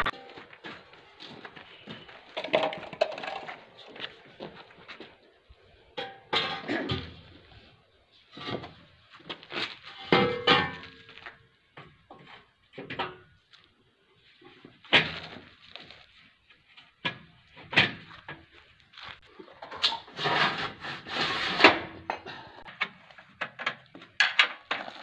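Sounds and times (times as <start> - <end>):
steel tubes knocking and clanking: 2.4 - 3.7, 6.0 - 7.3, 10.0 - 11.2, 21.5 - 25.0.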